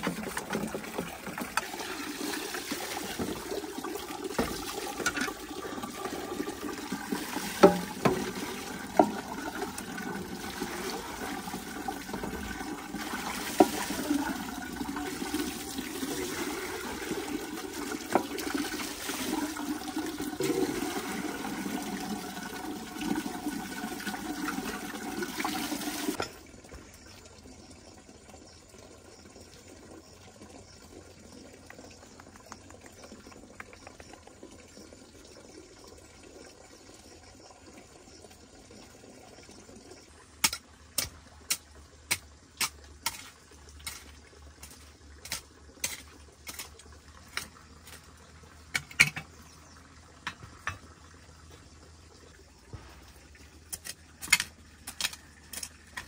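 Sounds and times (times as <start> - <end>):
water pouring onto bamboo: 0.0 - 27.5.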